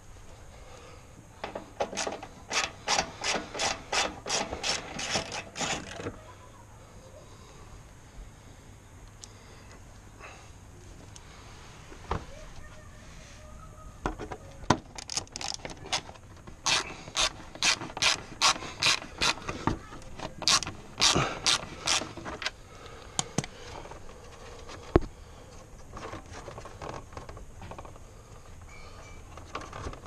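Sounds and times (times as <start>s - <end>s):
socket ratchet clicking: 16.6s - 19.4s, 20.4s - 22.1s.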